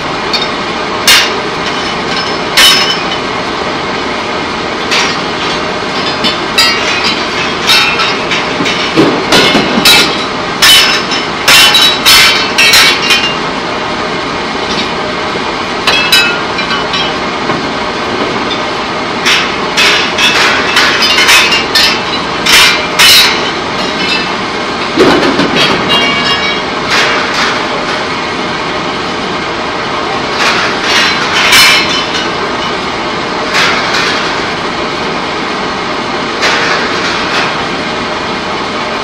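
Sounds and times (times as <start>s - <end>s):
industrial machinery din: 0.0s - 39.0s
metallic clanks and bangs: 0.3s - 3.3s, 4.8s - 13.6s, 15.8s - 28.1s, 30.3s - 32.8s, 33.4s - 34.6s, 36.4s - 37.7s.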